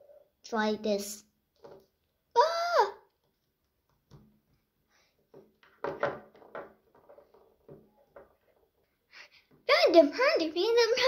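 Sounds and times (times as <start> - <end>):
plastic toys knocking on table: 5.4 - 8.7.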